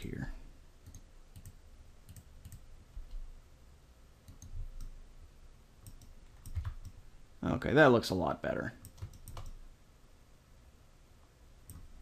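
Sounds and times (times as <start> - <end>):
computer mouse and keyboard clicks: 5.8 - 7.0, 8.8 - 9.6.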